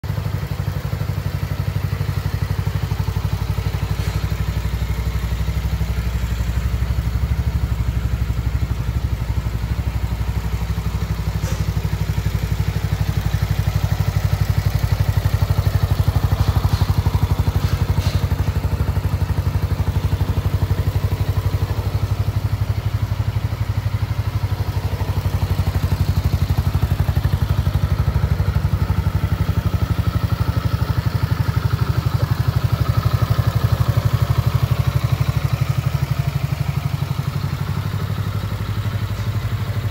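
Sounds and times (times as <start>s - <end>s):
scooter engine idling: 0.0s - 39.9s.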